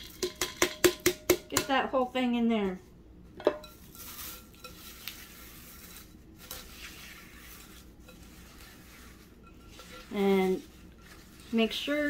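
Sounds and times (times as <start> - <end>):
spatula rustling and scraping: 2.8 - 12.0.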